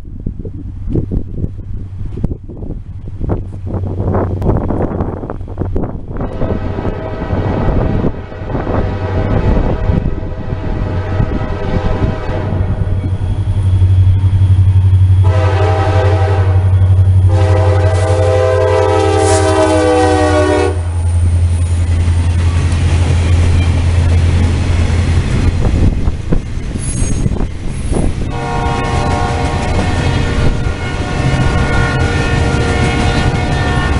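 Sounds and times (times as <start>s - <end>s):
diesel locomotive engine rumbling: 0.0s - 33.9s
freight cars rolling past: 0.0s - 33.9s
train horn blasts: 6.2s - 13.1s, 15.2s - 21.4s, 28.2s - 33.9s
wheels squealing: 21.2s - 33.9s.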